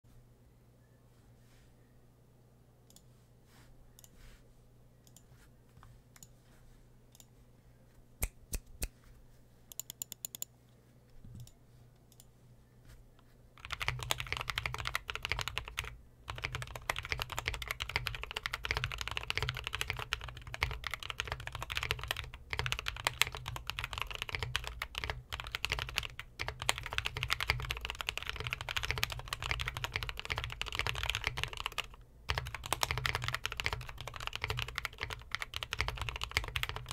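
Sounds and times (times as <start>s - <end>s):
mechanical keyboard typing: 13.6s - 36.9s.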